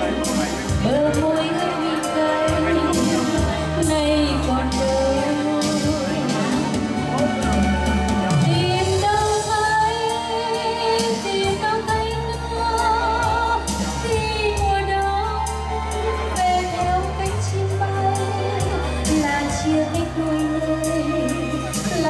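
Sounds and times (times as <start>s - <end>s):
instrumental accompaniment: 0.0s - 22.0s
steady bass: 0.0s - 22.0s
woman singing with vibrato: 0.8s - 7.1s, 8.3s - 22.0s.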